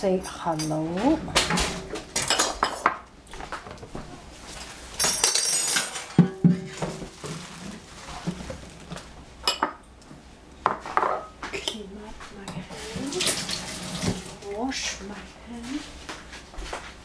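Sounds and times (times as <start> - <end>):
kitchenware clinks and knocks: 0.2 - 3.0, 4.6 - 8.6.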